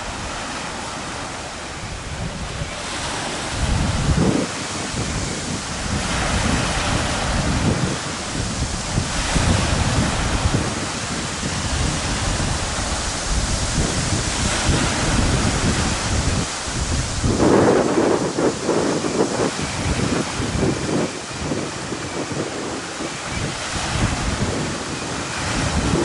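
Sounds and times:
waves washing against rocks: 0.0s - 26.0s
wind buffeting microphone: 0.0s - 26.0s.

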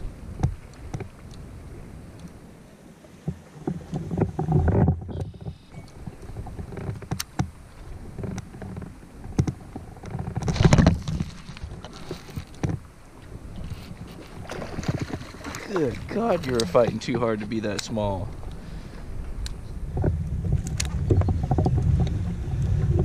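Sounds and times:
knocks and bumps in kayak: 0.0s - 1.9s, 3.1s - 23.0s.

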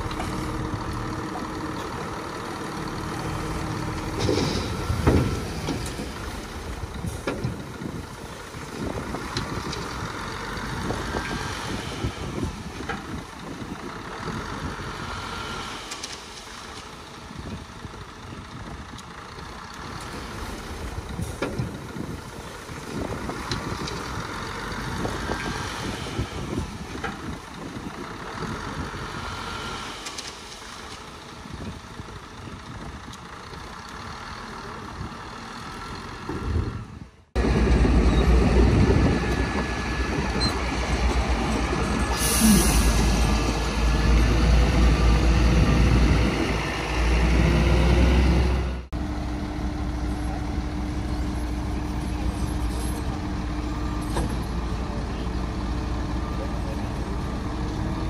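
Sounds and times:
heavy diesel engines running: 0.0s - 58.0s
air hiss: 42.1s - 43.4s.

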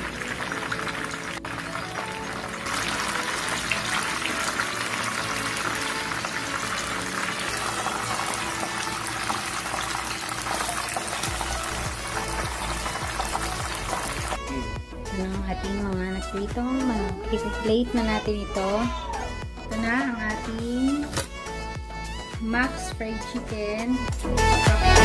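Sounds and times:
chicken deep-frying in oil: 0.0s - 14.4s
background music: 0.0s - 25.0s.

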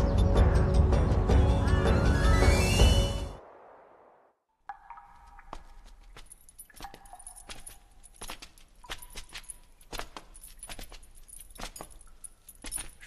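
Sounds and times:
metal chains clinking: 6.2s - 13.0s.

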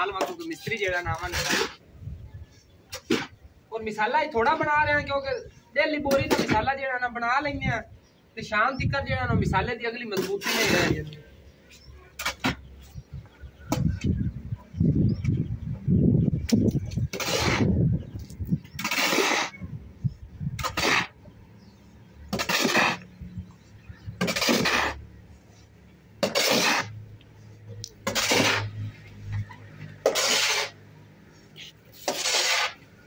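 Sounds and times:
shovel scraping concrete floor: 0.2s - 1.8s, 2.9s - 3.3s, 10.2s - 11.2s, 12.2s - 12.6s, 16.6s - 19.6s, 20.6s - 21.2s, 22.3s - 23.1s, 24.1s - 25.1s, 26.2s - 27.0s, 28.0s - 30.8s, 31.6s - 33.0s.

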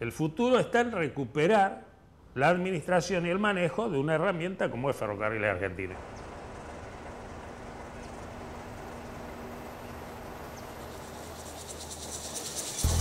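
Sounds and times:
insect trill: 8.8s - 13.0s.

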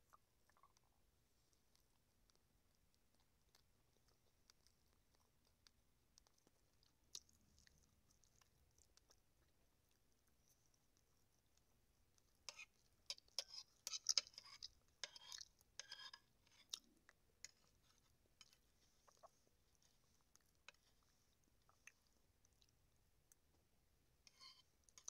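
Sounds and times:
person chewing with mouth clicks: 1.5s - 10.1s, 12.2s - 23.6s.

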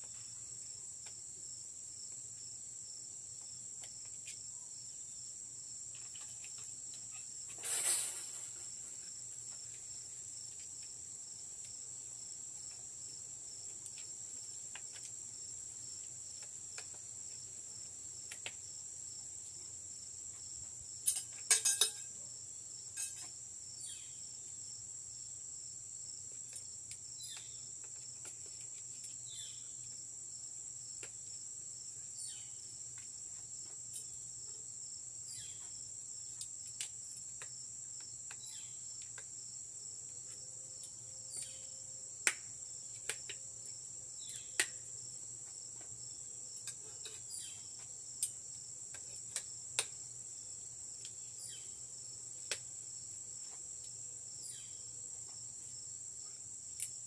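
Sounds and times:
high-pitched insect chorus: 0.0s - 10.5s, 18.6s - 27.7s, 34.9s - 36.4s, 37.0s - 41.8s, 43.6s - 48.6s, 49.4s - 52.2s, 54.3s - 57.0s.

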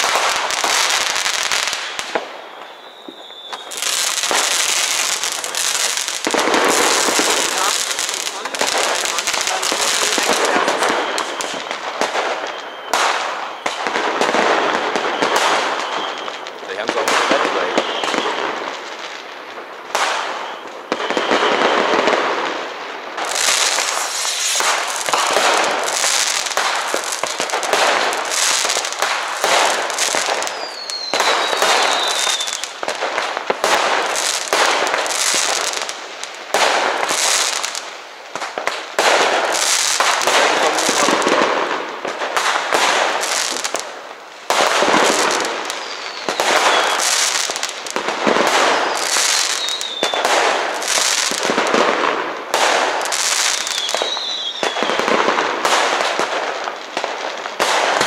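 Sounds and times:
fireworks bangs and crackling: 0.0s - 58.0s
falling whistle: 2.4s - 3.9s, 10.8s - 11.6s, 12.3s - 13.8s, 14.6s - 16.5s, 17.7s - 18.4s, 20.2s - 22.1s, 30.4s - 32.8s, 45.8s - 47.2s, 48.8s - 50.2s, 53.7s - 54.9s.

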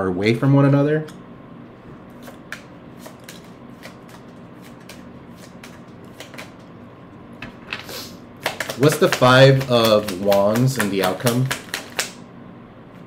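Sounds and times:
cards being shuffled: 2.1s - 6.7s, 7.7s - 12.2s.

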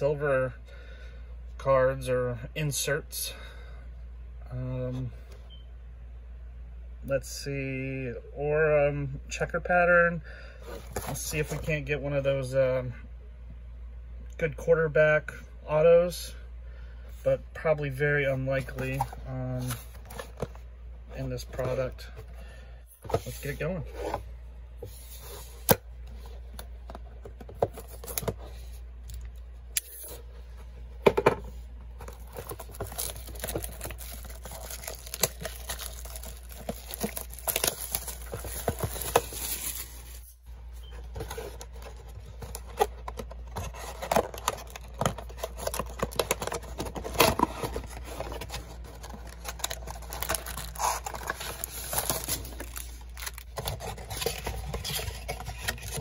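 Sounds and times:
plastic wrap tearing and crinkling: 32.1s - 40.3s, 43.6s - 56.0s.

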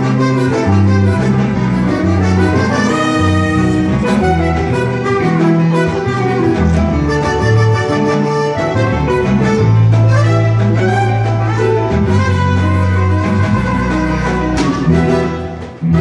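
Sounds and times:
electric bass: 0.0s - 16.0s
piano: 0.0s - 16.0s
trumpets playing melody: 0.0s - 16.0s
drums: 8.7s - 16.0s.

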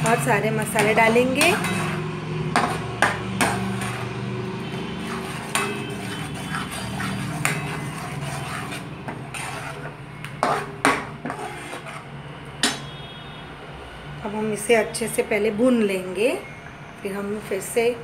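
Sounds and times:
metal ladle knocking pan: 0.0s - 4.0s, 5.4s - 6.0s, 10.4s - 11.4s, 12.6s - 13.0s
ladle stirring thick gravy: 0.0s - 13.0s.

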